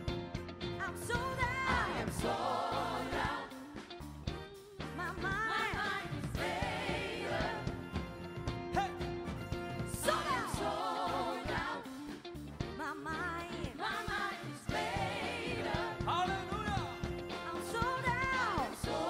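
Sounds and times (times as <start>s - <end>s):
drums: 0.0s - 19.0s
group of singers singing: 1.0s - 3.9s, 5.1s - 8.1s, 9.8s - 12.2s, 13.0s - 16.8s, 17.4s - 19.0s.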